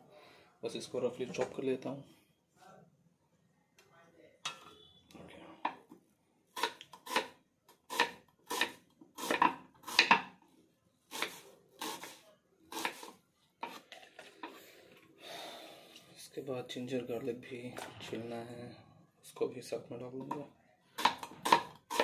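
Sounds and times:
knife chopping onion on wooden board: 6.6s - 10.4s, 12.7s - 13.1s, 21.0s - 22.0s.

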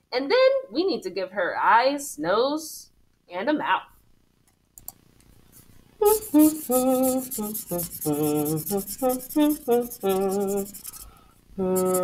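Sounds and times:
marker scratching on paper: 5.5s - 11.1s, 11.8s - 12.0s
woman humming: 6.0s - 11.0s, 11.6s - 12.0s.

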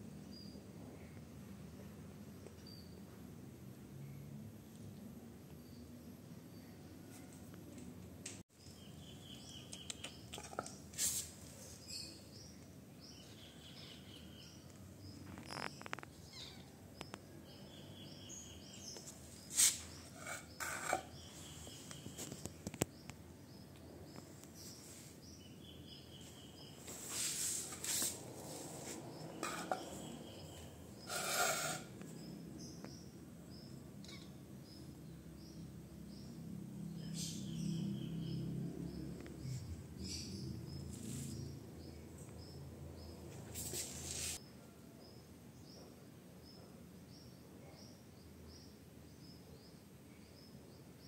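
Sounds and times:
birds chirping: 8.5s - 44.4s.

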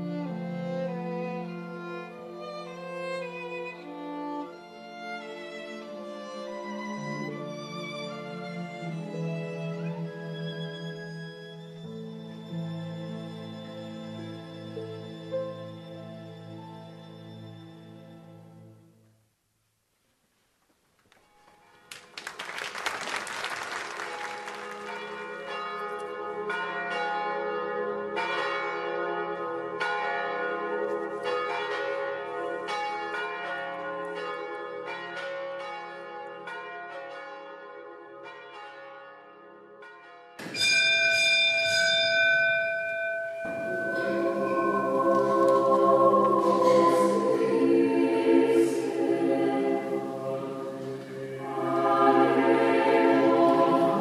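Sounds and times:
choir singing: 0.0s - 11.0s, 43.4s - 54.0s
church bells ringing: 24.0s - 54.0s.

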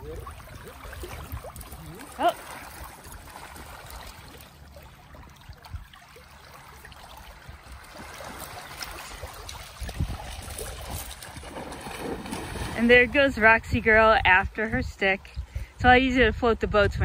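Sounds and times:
waves lapping on stony shore: 0.0s - 14.6s
dog splashing in water: 5.9s - 13.3s.

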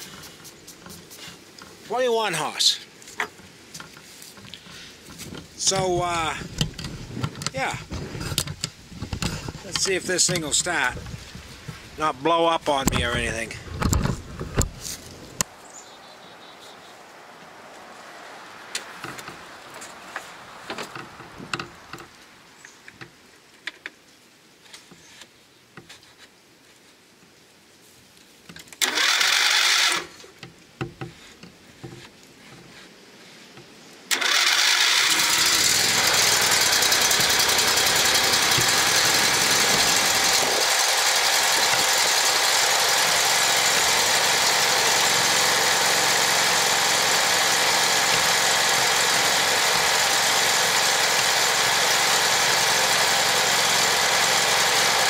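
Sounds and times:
riding mower engine starting: 3.3s - 16.0s, 17.8s - 22.3s, 28.8s - 30.4s, 34.1s - 55.0s.

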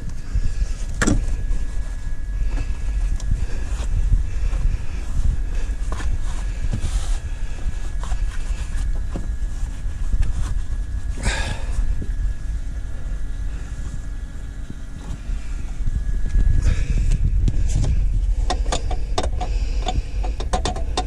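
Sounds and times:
wind rumble on microphone: 0.0s - 21.0s
plastic knocks and clicks: 18.5s - 21.0s.

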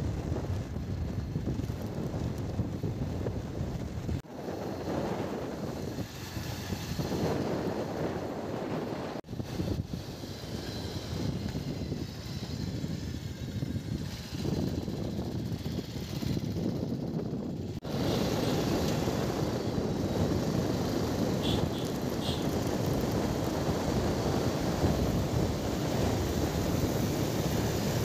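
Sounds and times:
motorcycle engine running: 0.0s - 28.0s
wind on microphone: 0.0s - 28.0s.

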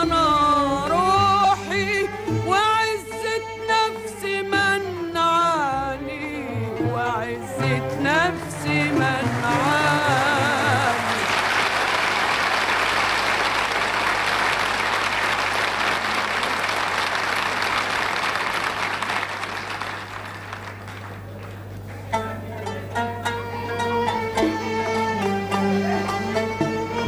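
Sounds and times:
singing with orchestra: 0.0s - 11.9s
orchestra strings playing: 0.0s - 12.2s, 22.1s - 27.0s
audience applauding: 8.3s - 22.1s.

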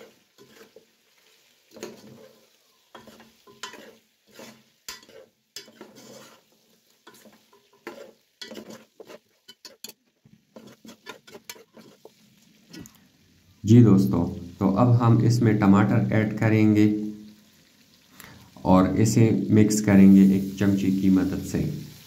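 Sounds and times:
metal spoon scraping metal pot: 0.0s - 0.8s, 1.7s - 10.0s, 10.6s - 12.1s
chicken sizzling in oil: 0.0s - 22.0s.

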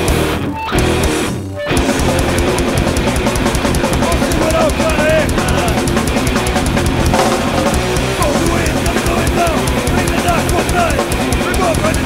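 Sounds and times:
distorted electric guitars: 0.0s - 12.0s
fast drums with cymbal hits: 1.8s - 12.0s
high bending guitar notes: 6.8s - 9.8s.

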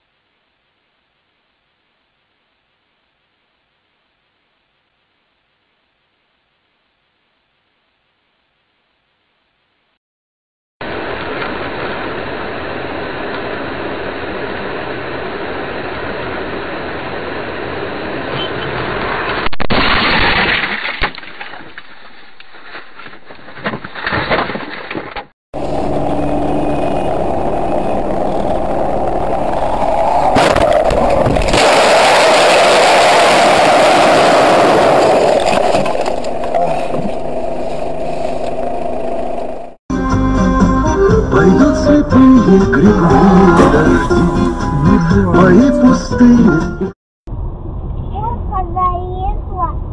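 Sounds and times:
car engine and road noise: 10.8s - 19.5s, 25.6s - 39.8s, 47.3s - 49.9s
loud crash: 19.1s - 21.9s, 29.5s - 36.2s
knocks and clatter: 19.6s - 25.3s.

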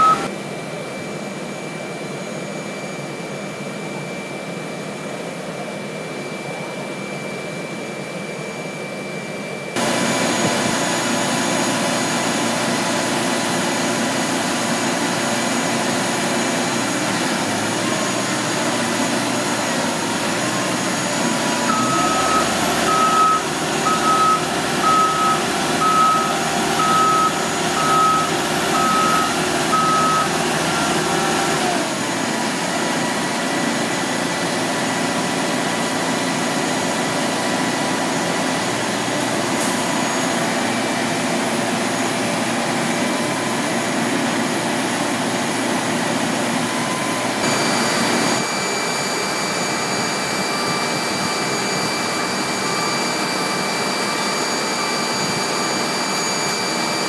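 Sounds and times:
backup alarm beeping: 0.0s - 0.3s, 21.6s - 31.2s
higher machinery whine: 0.0s - 57.0s
ramp machinery whine: 0.0s - 57.0s.

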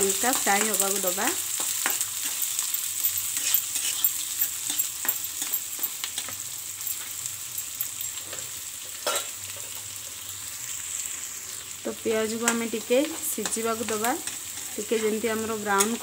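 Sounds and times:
onions sizzling in oil: 0.0s - 16.0s
spatula scraping a pan: 1.6s - 7.2s.

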